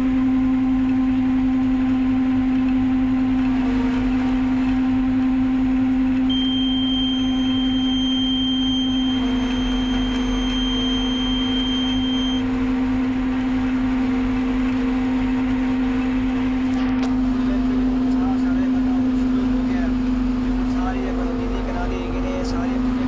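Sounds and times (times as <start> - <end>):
harvester engine drone: 0.0 - 23.0
high-pitched tone: 6.3 - 12.5.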